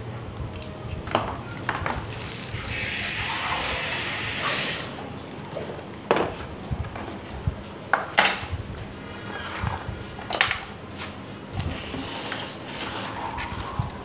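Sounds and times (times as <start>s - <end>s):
packaging rustling and scraping: 1.5s - 2.9s, 9.4s - 14.0s.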